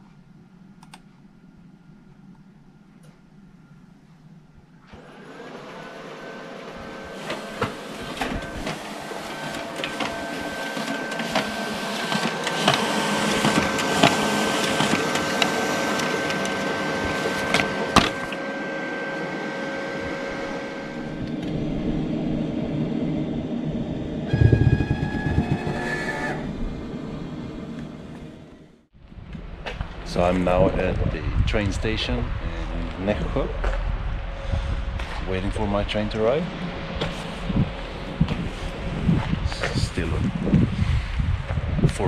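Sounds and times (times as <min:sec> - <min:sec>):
printer whirring hum: 0:00.0 - 0:28.9, 0:34.2 - 0:40.8
coffee machine noise: 0:04.8 - 0:28.8
clicking paper feed: 0:07.1 - 0:18.4.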